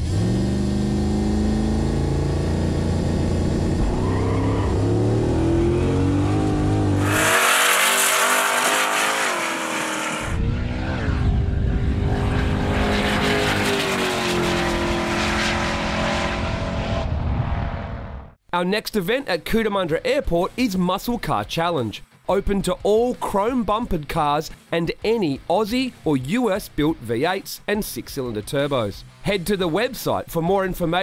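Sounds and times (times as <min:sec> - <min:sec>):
car engine accelerating hard: 0:00.0 - 0:18.4.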